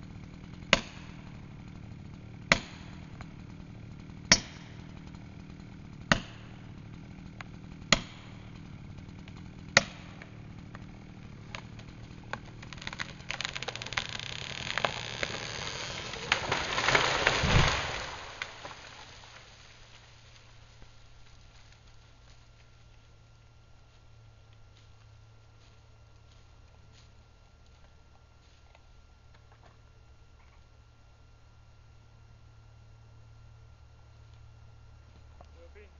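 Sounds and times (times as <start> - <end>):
blows driving a wedge: 0.0 - 19.0
crash of branches: 0.0 - 22.9
wood crackling: 0.0 - 31.0
tree hitting ground thud: 0.1 - 20.2.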